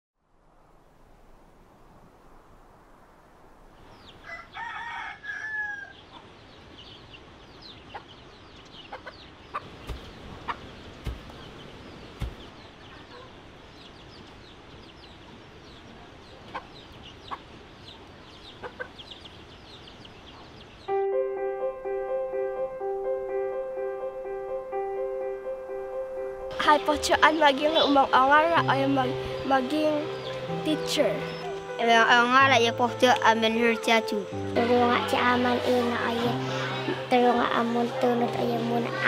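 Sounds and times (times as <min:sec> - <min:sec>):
rooster crowing: 0:04.2 - 0:06.0
dull thumps: 0:11.0 - 0:11.4, 0:12.2 - 0:12.6.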